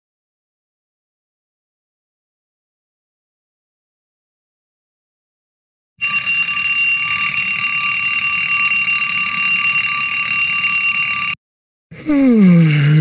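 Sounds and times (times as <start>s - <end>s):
twin-bell alarm clock ringing: 6.0s - 11.4s.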